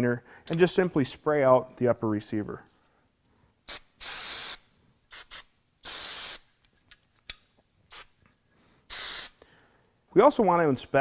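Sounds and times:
aerosol can spraying: 3.6 - 6.6, 7.9 - 8.2, 8.9 - 9.4.

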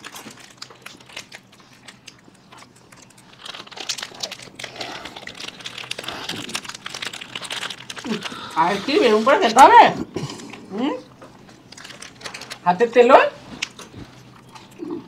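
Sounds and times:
wrappers crinkling: 0.0 - 9.8, 11.3 - 12.7
people eating mouth sounds: 0.0 - 12.6, 13.4 - 15.0.

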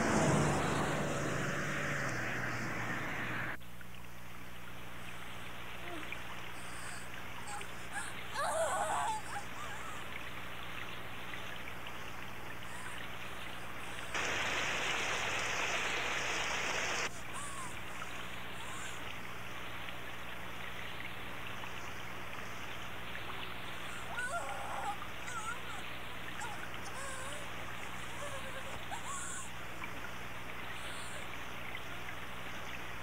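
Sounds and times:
rain-like hiss: 0.0 - 33.0.

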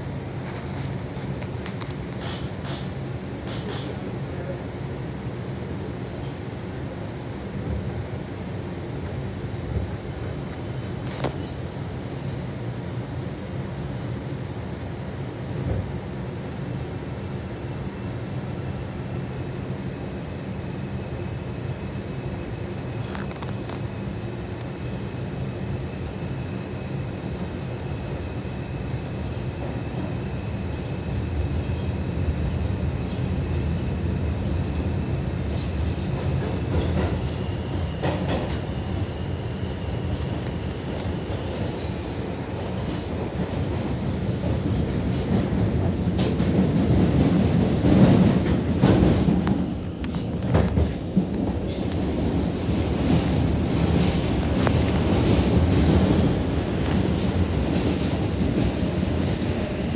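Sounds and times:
subway wheels rumbling on rails: 0.0 - 59.9.

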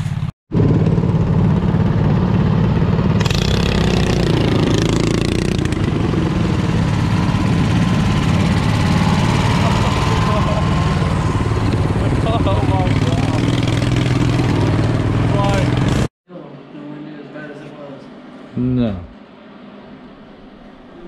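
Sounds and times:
lawn tractor engine running: 0.5 - 15.9.

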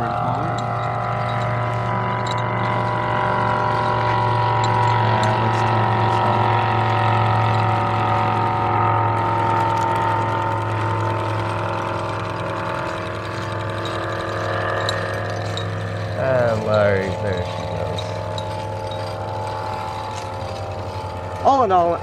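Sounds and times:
model steam engine humming: 0.0 - 22.0.

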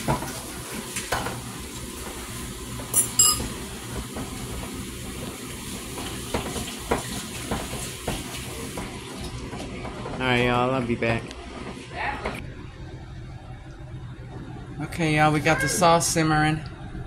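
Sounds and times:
food sizzling in a pan: 0.0 - 9.2
kitchen utensils clinking: 2.9 - 3.6.

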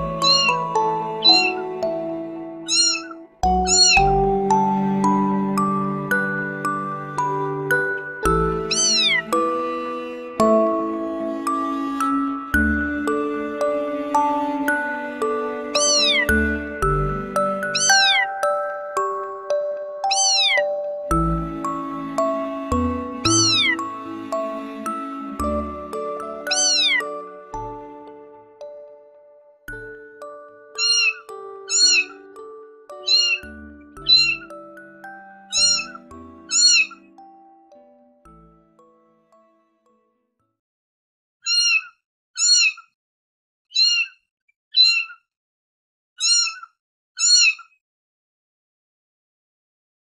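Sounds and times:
soft bell-like background music: 0.0 - 40.3
kitten meowing: 0.2 - 0.6, 1.2 - 1.6, 2.7 - 4.0, 8.7 - 9.2, 15.8 - 16.3, 17.7 - 18.2, 20.1 - 20.6, 23.3 - 23.8, 26.5 - 27.0, 30.8 - 32.1, 33.0 - 33.4, 34.1 - 34.4, 35.5 - 37.0, 41.5 - 42.7, 43.8 - 44.1, 44.8 - 45.1, 46.2 - 46.6
kitten mewing: 0.2 - 0.6, 2.7 - 3.1, 3.7 - 4.0, 8.7 - 9.2, 15.8 - 16.2, 20.1 - 20.6, 26.5 - 27.0, 33.1 - 33.4, 35.5 - 35.9.

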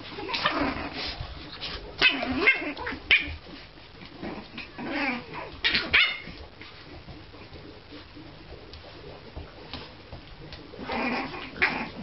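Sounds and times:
puppies yipping and barking: 4.6 - 6.4.

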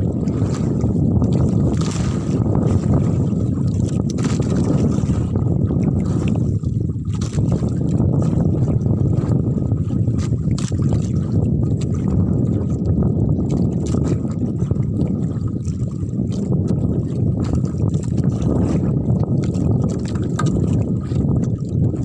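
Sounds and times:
water rushing past hull: 0.0 - 22.0
wind on microphone: 0.0 - 22.0.

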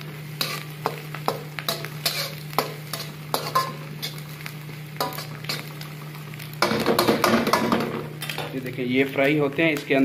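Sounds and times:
light sizzle: 0.0 - 10.0
spatula scraping a wok: 0.3 - 4.3, 5.0 - 5.8.

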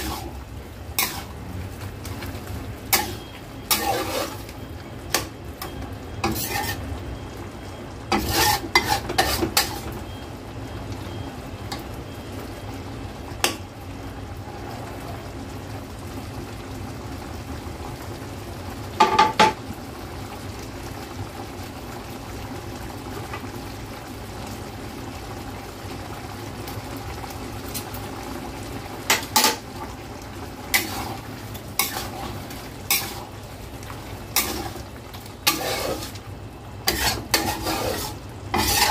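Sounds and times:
metal spatula scraping wok: 0.0 - 1.5, 2.9 - 6.9, 8.1 - 10.0, 29.1 - 29.7, 30.7 - 33.4, 34.3 - 36.2, 36.8 - 38.9
food sizzling: 0.0 - 38.9.

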